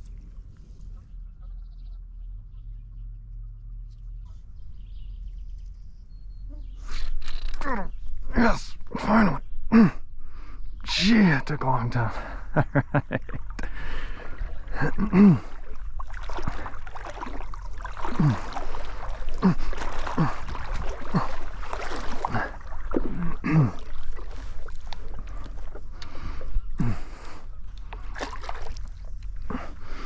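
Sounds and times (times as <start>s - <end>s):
water sloshing against a paddleboard: 13.1s - 30.0s.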